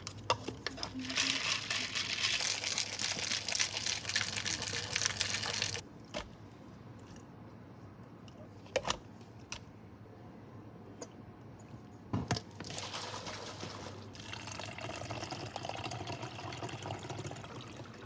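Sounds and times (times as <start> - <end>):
ice rattling in shaker: 0.8 - 5.8.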